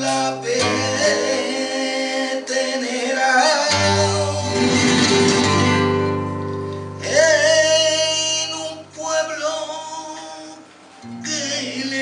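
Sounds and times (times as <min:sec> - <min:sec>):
flamenco guitar: 0:00.0 - 0:12.0
man singing ornamented vocal: 0:07.0 - 0:12.0.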